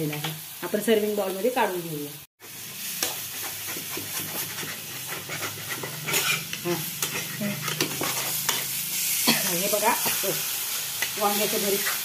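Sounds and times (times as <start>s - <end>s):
metal spatula scraping iron pan: 3.0s - 8.8s.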